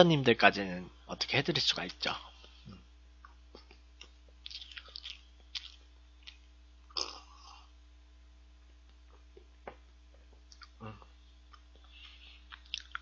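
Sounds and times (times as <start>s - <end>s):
person eating mouth sounds: 2.6s - 7.7s, 9.0s - 13.0s.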